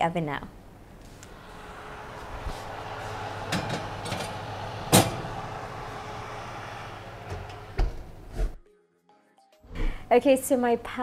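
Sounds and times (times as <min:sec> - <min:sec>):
steady hum: 0:00.8 - 0:08.6.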